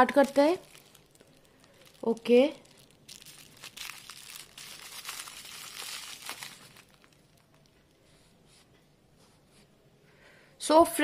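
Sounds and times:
bubble wrap crinkling: 0.0 - 8.0.

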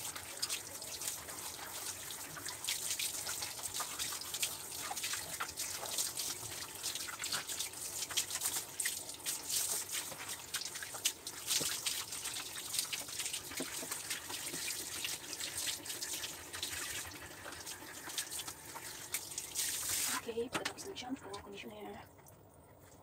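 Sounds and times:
shower head spraying water: 19.5 - 20.8.

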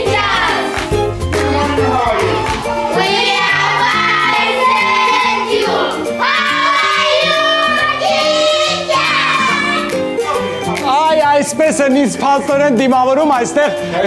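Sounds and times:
children singing in chorus: 0.0 - 0.8, 2.1 - 9.9.

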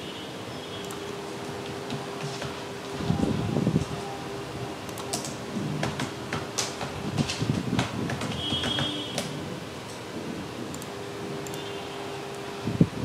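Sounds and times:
steady low hum: 0.4 - 13.0
keyboard typing: 0.8 - 11.7.

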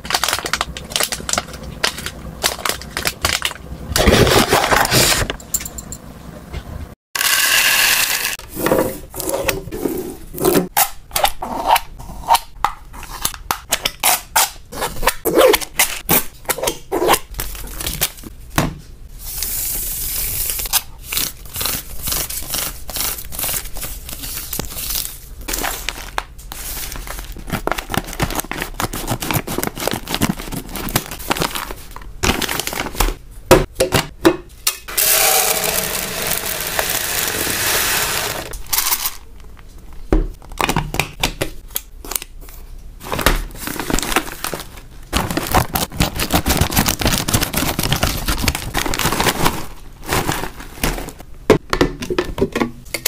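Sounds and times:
plastic packets crinkling: 0.0 - 5.2, 20.5 - 33.2, 43.0 - 51.2
packets being torn open: 0.0 - 5.3, 20.6 - 33.0, 43.2 - 50.9
plastic rustling: 0.0 - 5.4, 19.3 - 33.2, 42.4 - 51.3.

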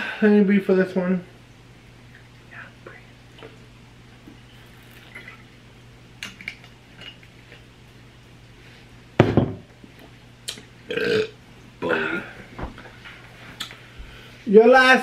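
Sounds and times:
loud knock on table: 9.2 - 9.7.

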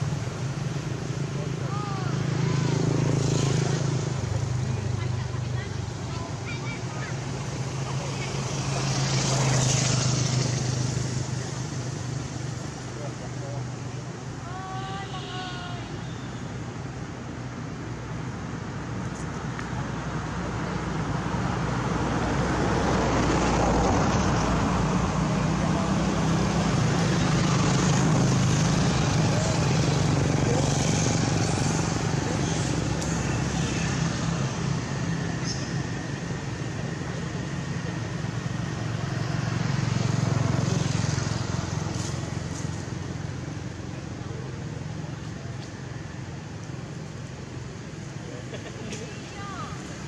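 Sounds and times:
road traffic rumble: 0.0 - 50.0
vehicle engine passing by: 1.0 - 13.8, 21.0 - 45.3.

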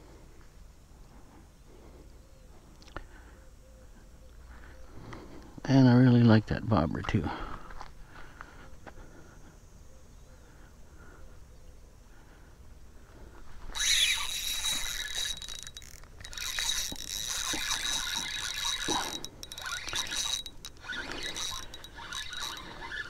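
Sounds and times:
fishing reel gears whirring: 13.7 - 23.0.

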